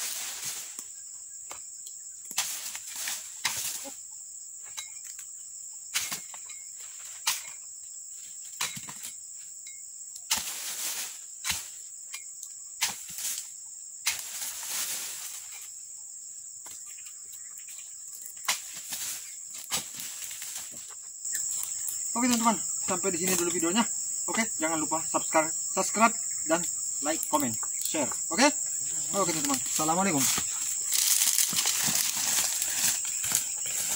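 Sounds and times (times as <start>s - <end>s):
fronds rustling and falling: 0.0s - 1.6s, 2.3s - 3.9s, 10.3s - 11.8s, 14.1s - 15.8s, 16.7s - 22.6s, 27.0s - 33.9s
high-pitched insect chorus: 0.0s - 33.9s
chisel chopping palm fronds: 2.3s - 3.9s, 5.9s - 6.4s, 10.3s - 11.8s, 12.8s - 13.4s, 14.0s - 15.5s, 18.4s - 20.8s.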